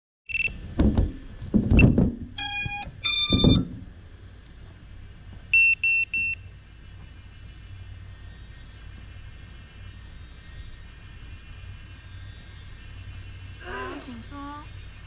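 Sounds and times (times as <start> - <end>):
short high beeps: 0.3 - 0.5, 1.8 - 3.7, 5.6 - 6.4
handling knocks and thumps: 0.8 - 2.4
drone motor startup tones: 1.8 - 3.9, 5.5 - 15.0.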